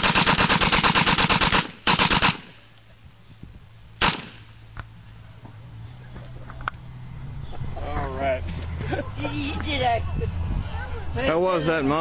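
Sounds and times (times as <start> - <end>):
submachine gun automatic fire: 0.0 - 2.5.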